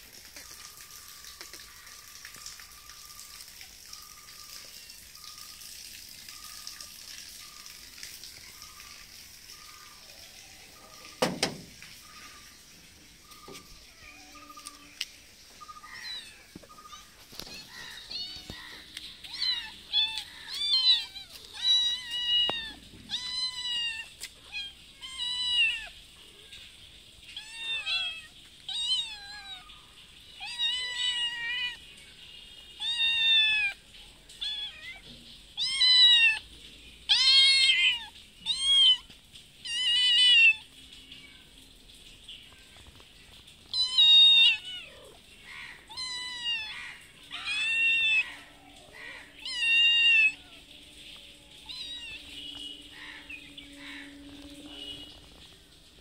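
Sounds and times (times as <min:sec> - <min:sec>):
cats meowing: 0:13.2 - 0:15.0, 0:15.6 - 0:26.7, 0:27.3 - 0:31.9, 0:32.8 - 0:36.5, 0:37.1 - 0:41.6, 0:42.4 - 0:55.4.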